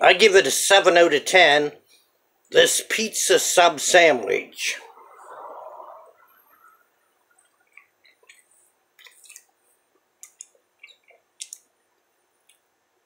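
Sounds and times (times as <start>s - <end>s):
person chewing food: 7.4s - 11.6s.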